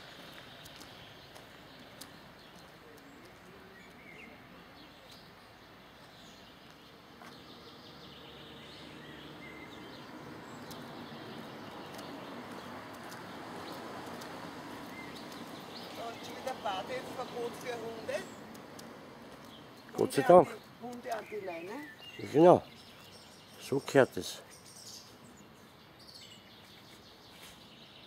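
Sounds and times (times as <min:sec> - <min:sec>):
steady outdoor noise: 0:00.0 - 0:28.0
light clicks: 0:10.6 - 0:10.9, 0:18.5 - 0:19.6.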